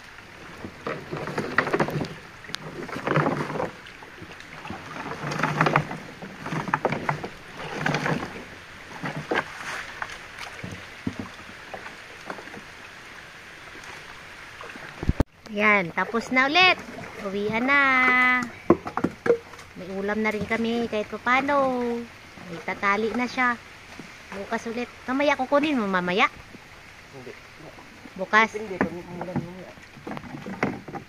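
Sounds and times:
water splashing against a boat: 0:00.0 - 0:31.0.

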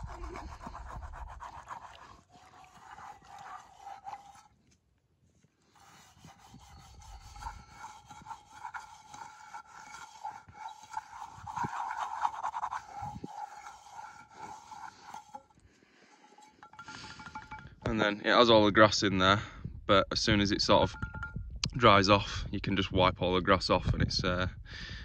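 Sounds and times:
grass scrubbing a wet pan: 0:00.0 - 0:04.6, 0:05.7 - 0:17.6.

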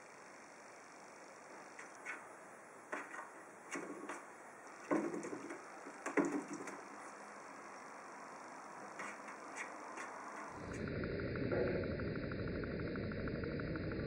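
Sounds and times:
hollow knocks on plastic watering can: 0:04.8 - 0:06.8.

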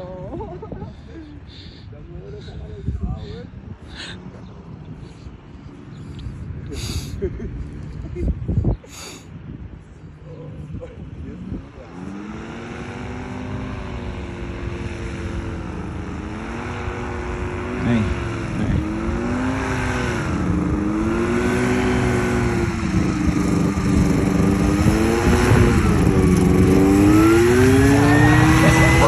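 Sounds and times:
paramotor engine and propeller: 0:00.0 - 0:29.0.

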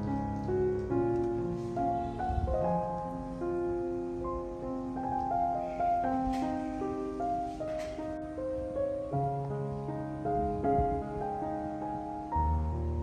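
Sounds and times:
slow piano melody: 0:00.0 - 0:13.0.

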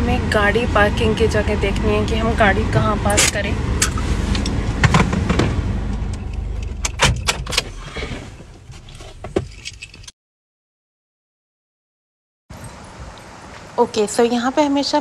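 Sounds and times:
car engine and road rumble: 0:00.0 - 0:10.1.

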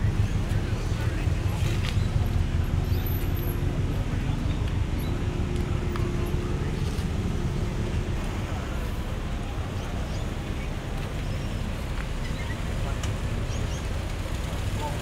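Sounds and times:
car engine rumbling: 0:00.0 - 0:15.0.

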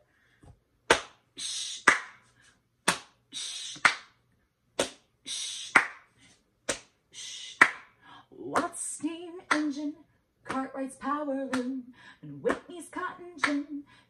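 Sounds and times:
hands patting and clapping: 0:00.4 - 0:04.2, 0:04.8 - 0:07.0, 0:07.6 - 0:08.0, 0:08.6 - 0:09.8, 0:10.5 - 0:10.8, 0:11.5 - 0:11.8, 0:12.4 - 0:12.8, 0:13.4 - 0:13.7.

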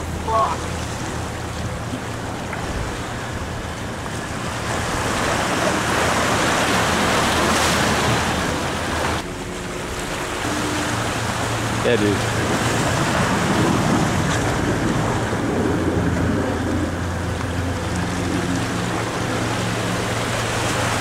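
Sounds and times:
surf breaking against rocks: 0:00.0 - 0:17.0.

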